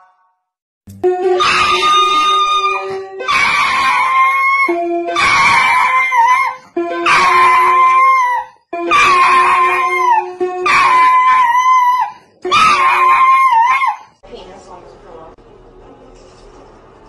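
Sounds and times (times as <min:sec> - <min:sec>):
electronic keyboard held notes: 0:00.9 - 0:06.0, 0:06.6 - 0:08.1, 0:08.7 - 0:11.4
dog howling: 0:01.4 - 0:14.2.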